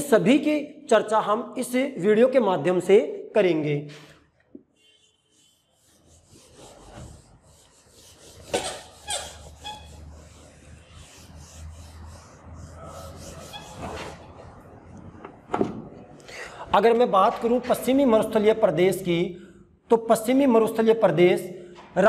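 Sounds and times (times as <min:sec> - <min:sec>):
eraser rubbing on whiteboard: 0:05.2 - 0:14.6.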